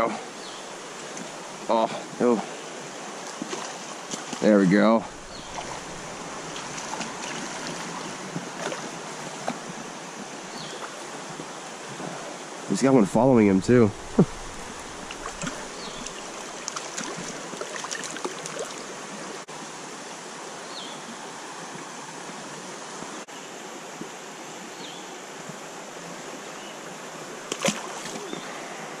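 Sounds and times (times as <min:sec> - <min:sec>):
creek water flowing: 0:00.0 - 0:29.0
fish splash in water: 0:14.6 - 0:18.8, 0:27.5 - 0:28.4.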